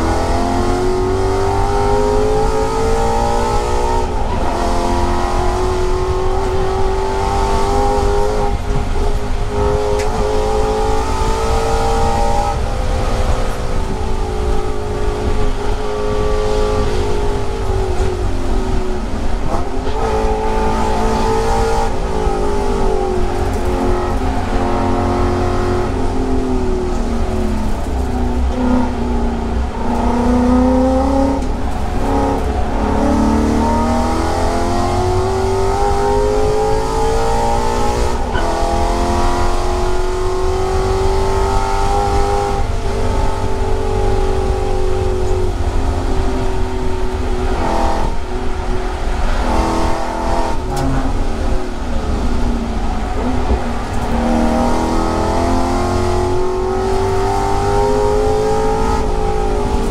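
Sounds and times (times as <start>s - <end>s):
race car engine accelerating: 0.0s - 59.9s.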